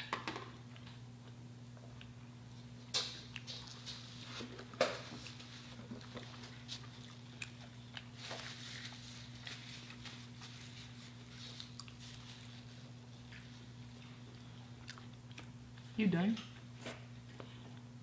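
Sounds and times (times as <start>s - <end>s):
steady low hum: 0.0s - 18.0s
chewing food: 4.6s - 17.9s.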